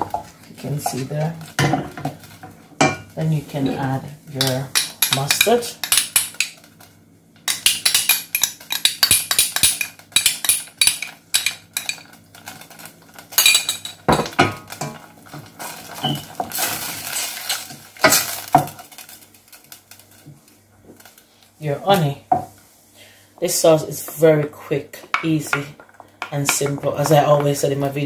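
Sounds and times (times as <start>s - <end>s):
wooden spoon stirring in saucepan: 23.4s - 28.0s.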